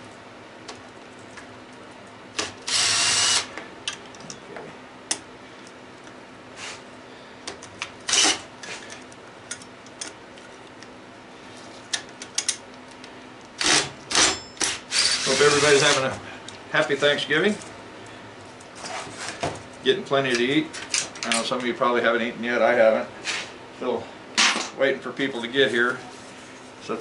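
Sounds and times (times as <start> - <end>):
cordless drill spinning: 2.7 - 3.5, 8.1 - 8.4, 14.9 - 16.0.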